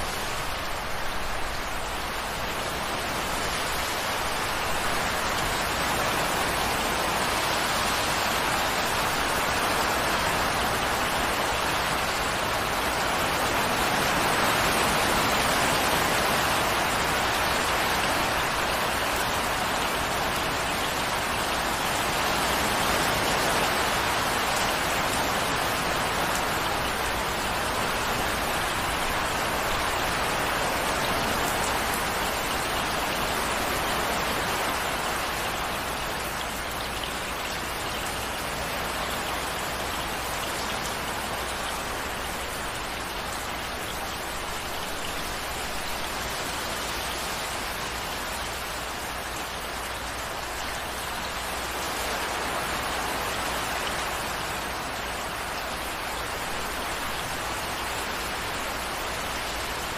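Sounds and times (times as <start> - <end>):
steady rain falling: 0.0 - 59.9.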